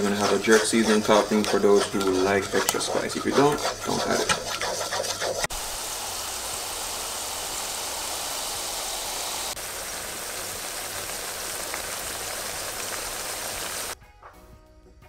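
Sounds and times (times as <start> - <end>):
hot oil sizzling in a frying pan: 5.5 - 14.0.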